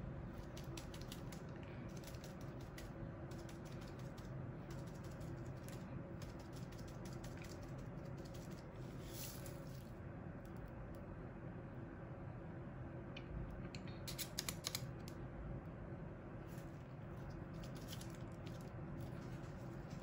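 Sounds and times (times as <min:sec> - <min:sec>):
steady low hum: 0:00.0 - 0:20.0
plastic piping bag clicking: 0:14.1 - 0:15.2.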